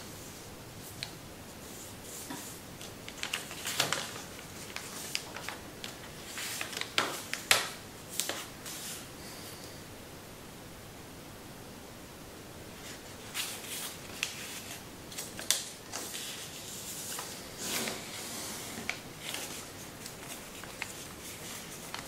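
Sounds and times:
steady hiss: 0.0 - 22.0
paper rustling and crackling: 1.6 - 9.1, 12.8 - 22.0.

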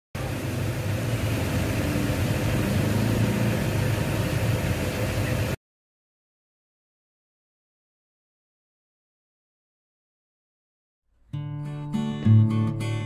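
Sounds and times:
road traffic rumble: 0.2 - 5.6.

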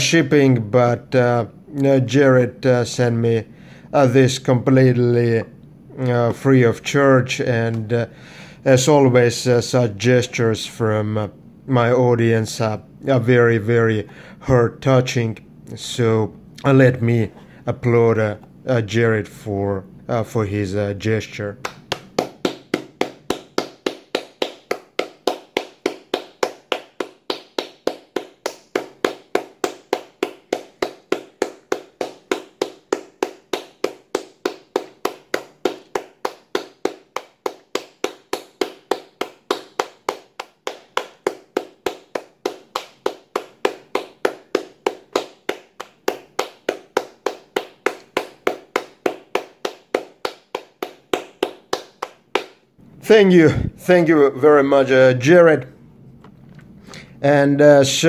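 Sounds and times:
person clapping hands: 21.6 - 52.7.

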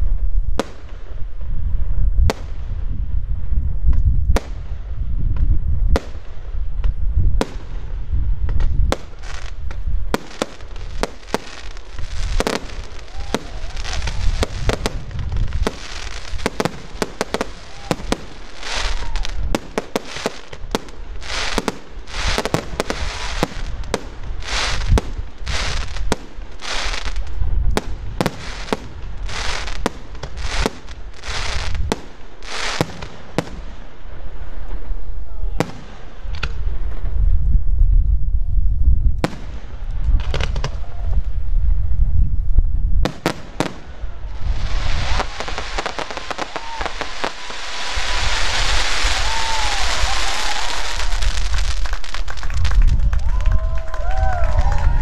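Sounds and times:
fireworks bangs: 3.9 - 37.4, 39.2 - 42.0, 43.0 - 55.0
fireworks hissing: 8.9 - 33.8, 43.2 - 52.4.

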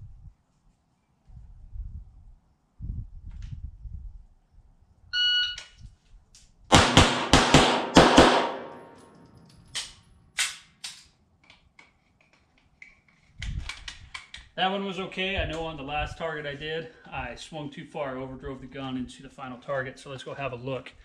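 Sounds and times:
shot timer beep: 5.2 - 5.6
pistol shots: 6.7 - 9.0
sharp knocks: 6.7 - 9.0.

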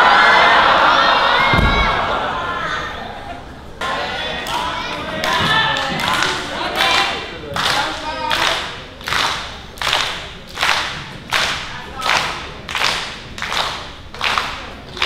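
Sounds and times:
rhythmic claps in a hall: 3.8 - 15.0.

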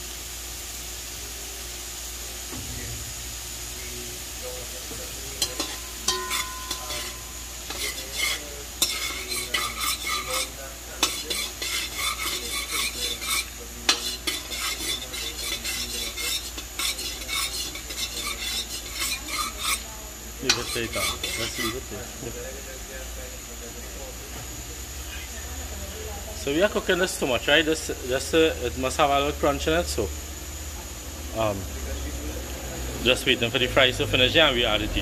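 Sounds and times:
oil sizzling: 0.0 - 35.0
metal spoon scraping pot: 5.4 - 21.9.

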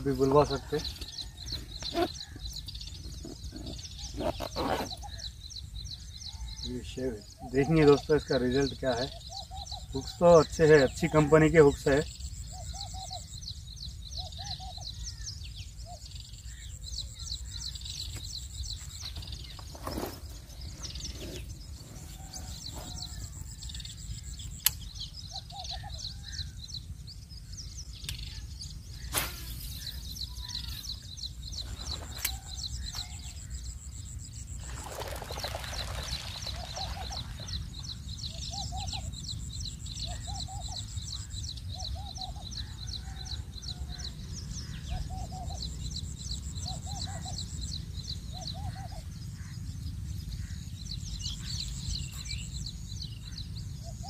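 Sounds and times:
bird chittering trill: 27.8 - 34.6.

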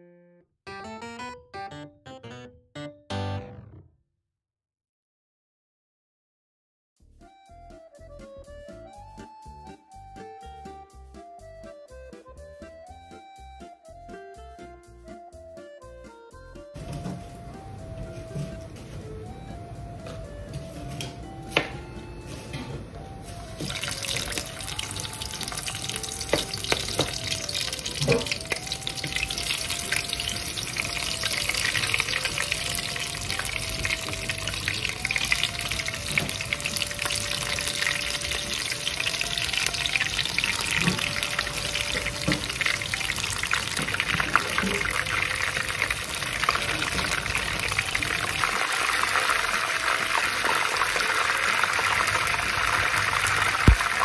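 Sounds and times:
simple music melody: 0.0 - 4.0, 7.0 - 50.1
shrimp deep-frying sizzle: 23.0 - 54.0.

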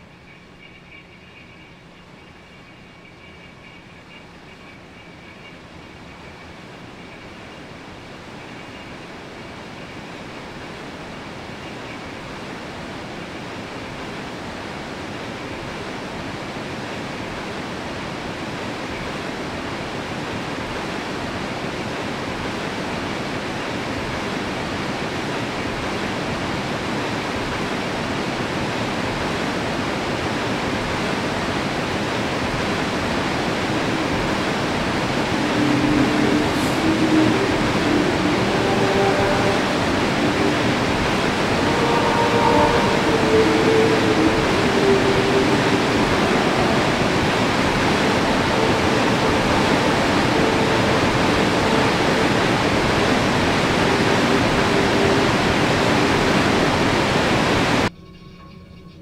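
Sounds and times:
waterfall rushing: 20.3 - 57.9.

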